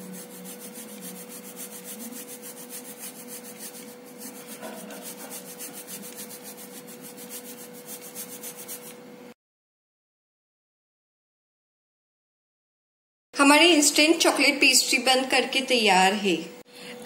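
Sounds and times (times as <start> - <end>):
chocolate grated on metal grater: 0.0 - 9.0.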